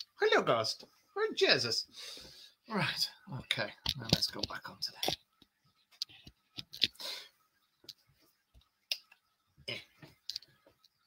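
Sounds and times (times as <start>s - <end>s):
faint clicks and taps: 3.5s - 7.0s, 7.6s - 11.0s.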